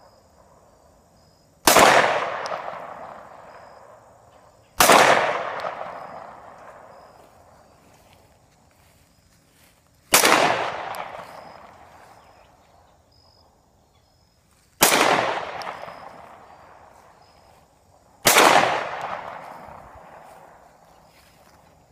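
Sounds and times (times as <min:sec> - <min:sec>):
pistol shots echoing: 0:01.6 - 0:04.0, 0:04.8 - 0:07.1, 0:10.1 - 0:12.1, 0:14.8 - 0:16.9, 0:18.2 - 0:20.6.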